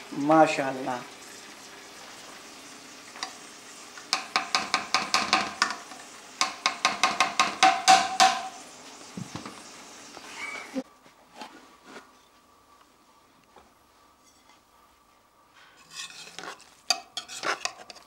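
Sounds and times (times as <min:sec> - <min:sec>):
spatula clinking against metal pot: 0:15.9 - 0:18.0.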